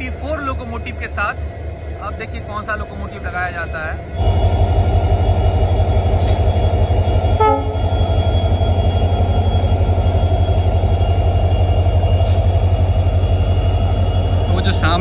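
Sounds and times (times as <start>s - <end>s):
diesel locomotive engine throbbing: 0.0s - 15.0s
train horn toot: 7.4s - 8.0s.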